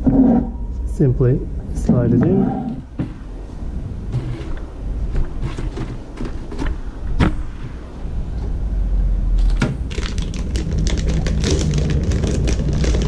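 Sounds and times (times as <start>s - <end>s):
plastic tray sliding and rubbing: 4.1s - 6.6s.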